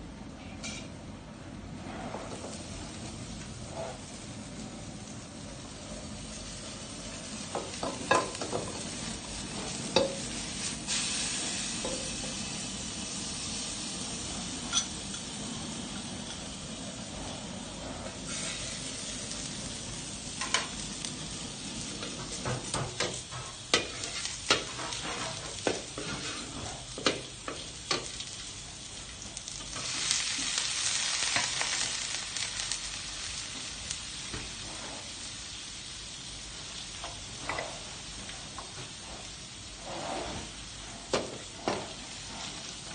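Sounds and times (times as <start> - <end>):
ladle clanking and scraping wok: 0.4 - 1.0, 7.5 - 12.6, 14.6 - 19.4, 20.3 - 20.9, 21.8 - 28.6, 37.0 - 42.9
vegetables sizzling: 2.3 - 42.9.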